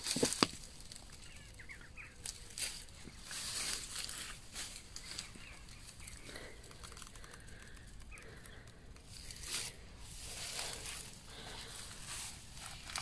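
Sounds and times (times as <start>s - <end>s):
footsteps through grass: 0.0s - 6.5s, 9.1s - 13.0s
bird chirps: 1.1s - 8.8s.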